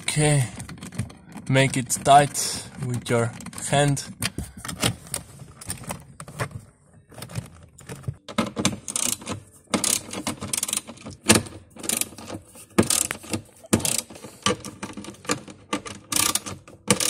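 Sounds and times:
ratchet wrench clicking: 8.9s - 9.2s, 9.8s - 10.8s, 12.8s - 13.2s, 13.8s - 14.2s, 16.1s - 17.0s.

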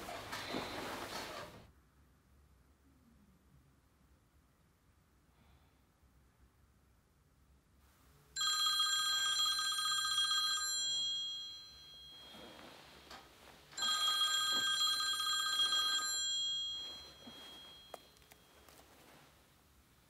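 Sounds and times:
smartphone ringtone: 8.4s - 12.8s, 13.8s - 18.3s.

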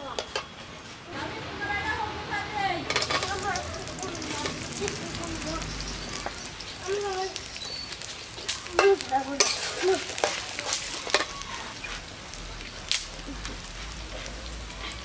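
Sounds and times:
onions sizzling in hot oil: 2.9s - 15.0s
steel spatula scraping pan: 8.8s - 11.3s.

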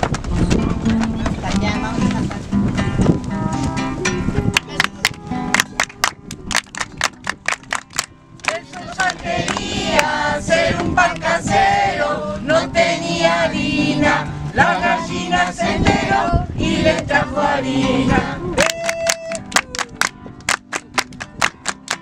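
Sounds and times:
strummed acoustic guitar: 0.1s - 6.5s
children and adults singing: 8.4s - 18.6s.

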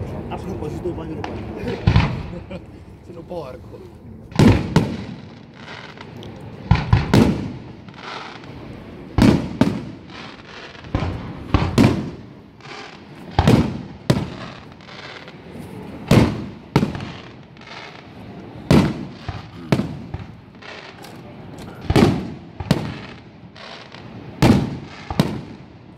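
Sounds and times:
firework bangs with echoing rumble: 0.7s - 2.6s, 4.3s - 25.9s.

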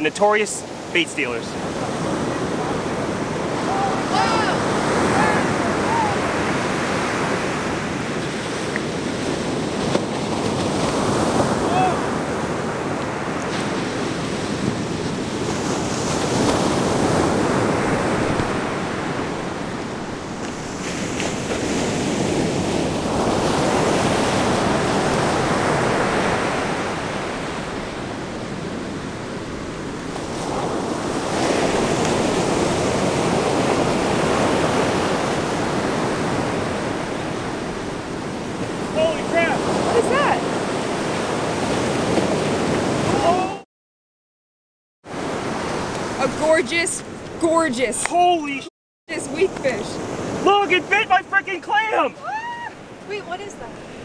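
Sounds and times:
ocean surf breaking: 0.0s - 43.6s, 45.1s - 54.0s.

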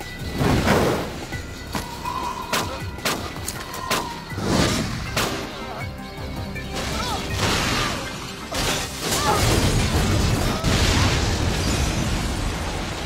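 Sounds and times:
music: 0.0s - 13.0s
explosion blast: 9.3s - 13.0s.

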